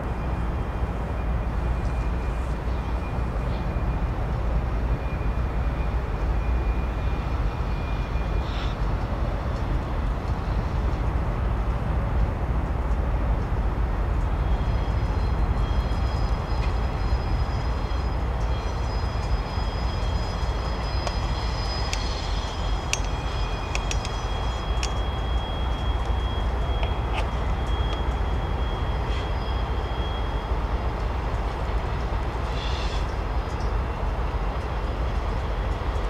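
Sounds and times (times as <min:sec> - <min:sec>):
low locomotive engine rumble: 0:00.0 - 0:36.0
high wheel squeal: 0:14.4 - 0:30.8
sharp clicks: 0:22.9 - 0:25.0.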